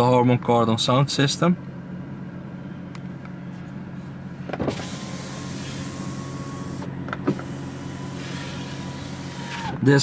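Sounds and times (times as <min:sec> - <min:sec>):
window motor whirring: 0:04.5 - 0:10.0.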